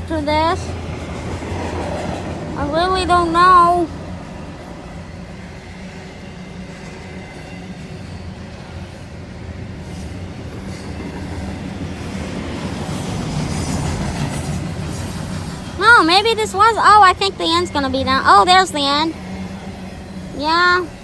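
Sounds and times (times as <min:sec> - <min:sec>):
freight train passing: 0:00.0 - 0:21.0
train cars rolling on rails: 0:00.0 - 0:21.0.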